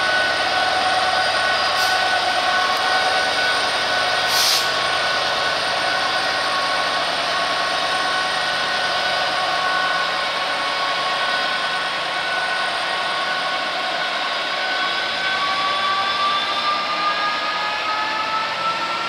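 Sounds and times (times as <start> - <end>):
diesel locomotive engine running: 0.0 - 19.0
short hiss: 4.3 - 4.7.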